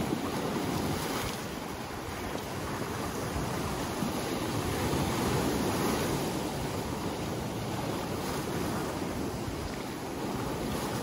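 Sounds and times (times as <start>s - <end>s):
waves breaking on pebble beach: 0.0s - 11.0s.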